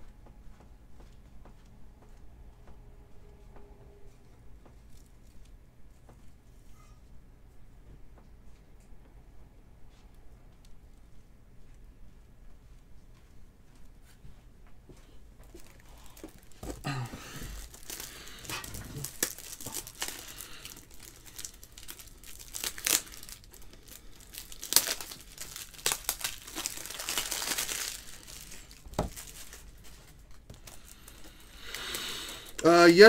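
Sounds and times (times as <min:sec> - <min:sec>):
plastic packaging crinkling: 0:15.5 - 0:33.0.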